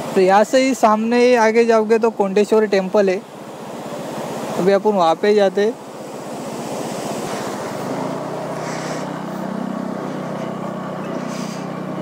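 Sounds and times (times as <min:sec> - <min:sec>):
motorcycle engine running: 0:07.5 - 0:12.0.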